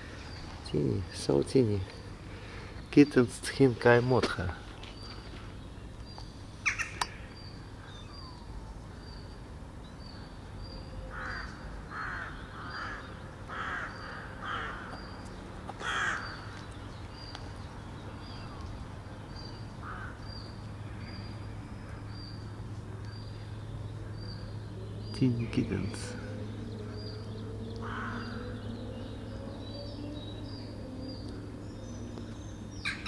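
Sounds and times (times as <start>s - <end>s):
low steady hum: 0.0s - 33.0s
crow cawing: 11.1s - 15.0s, 15.8s - 16.4s, 19.8s - 20.2s, 27.8s - 28.4s.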